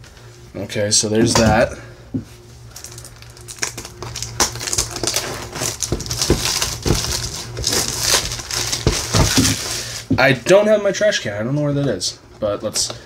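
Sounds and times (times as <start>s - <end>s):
plastic wrapping crinkling: 2.7s - 10.1s
taps and rustles handling box: 5.6s - 10.3s.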